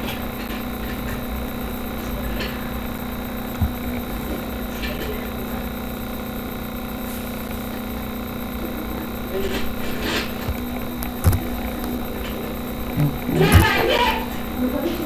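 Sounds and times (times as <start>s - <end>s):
background hum and hiss: 0.0s - 15.0s
faint high whine: 0.0s - 15.0s
faint clicks: 8.5s - 14.6s.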